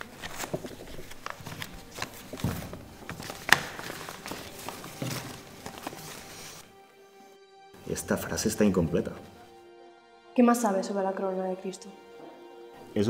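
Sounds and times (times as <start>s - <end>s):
paper map crackling and rustling: 0.0s - 6.7s.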